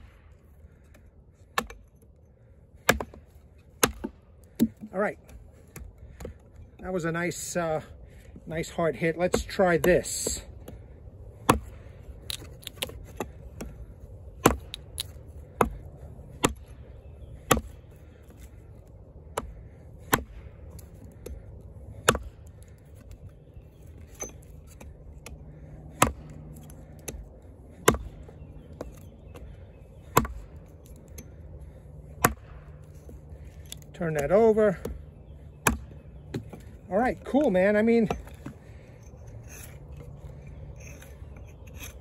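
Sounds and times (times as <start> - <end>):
axe chopping branch: 1.4 - 1.9, 2.8 - 6.4, 9.2 - 16.7, 17.4 - 18.6, 19.2 - 23.1, 24.0 - 38.9.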